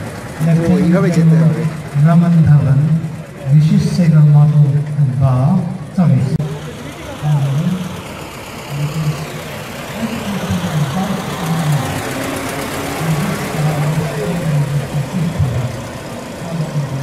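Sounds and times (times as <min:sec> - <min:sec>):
crowd noise: 0:00.0 - 0:17.0
car engine driving past: 0:06.3 - 0:17.0.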